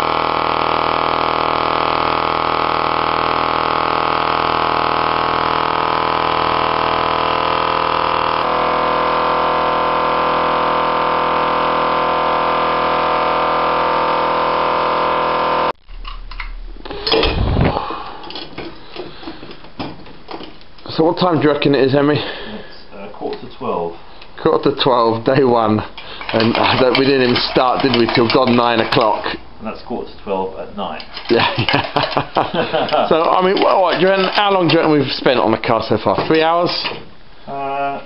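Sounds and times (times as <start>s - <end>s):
air compressor running: 0.0s - 19.6s, 26.0s - 29.4s
loud thump: 15.8s - 18.0s.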